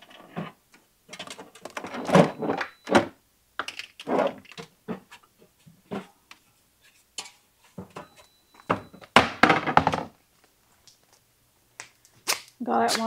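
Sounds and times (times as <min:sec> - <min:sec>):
knocks of things moved in cabinet: 0:00.0 - 0:05.2, 0:07.2 - 0:10.2.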